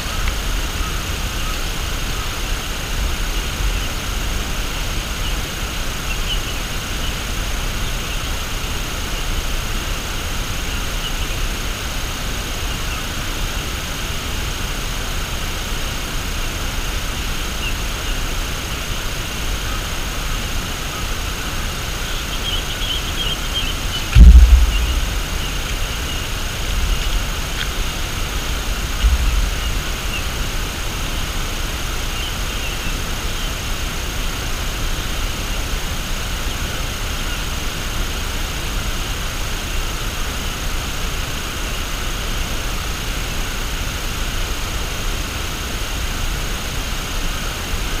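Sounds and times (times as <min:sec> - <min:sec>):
outdoor background hiss: 0:00.0 - 0:48.0
wind buffeting microphone: 0:23.9 - 0:31.3.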